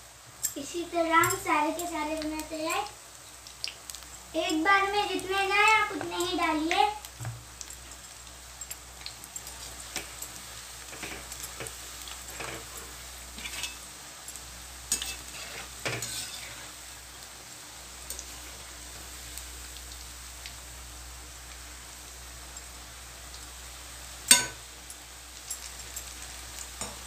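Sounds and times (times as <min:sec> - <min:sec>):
fritters sizzling in hot oil: 0:00.0 - 0:27.0
metal spoon scraping pan: 0:13.4 - 0:13.8, 0:14.9 - 0:16.7.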